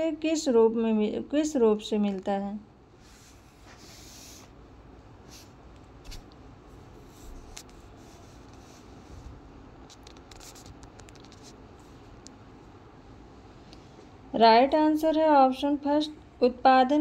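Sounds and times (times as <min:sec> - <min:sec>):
scratchy rustles: 0:07.0 - 0:12.0.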